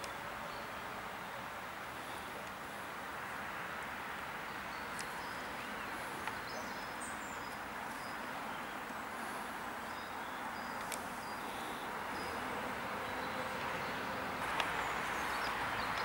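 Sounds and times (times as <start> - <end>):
outdoor background hiss: 0.0 - 16.0
light clicks: 10.8 - 11.1.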